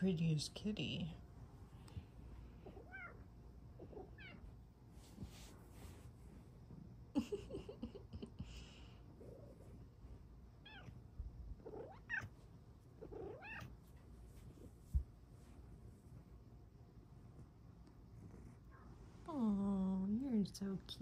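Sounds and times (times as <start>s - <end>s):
cat meowing: 2.7s - 3.2s, 3.8s - 4.4s, 10.6s - 11.0s, 11.6s - 12.3s, 13.0s - 13.7s.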